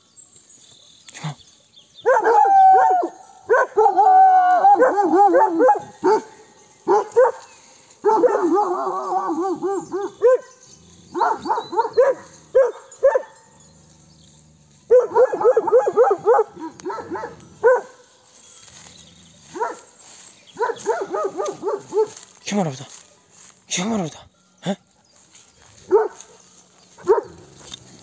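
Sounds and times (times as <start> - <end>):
dogs barking: 2.0 - 18.2, 19.4 - 22.4, 25.6 - 28.0.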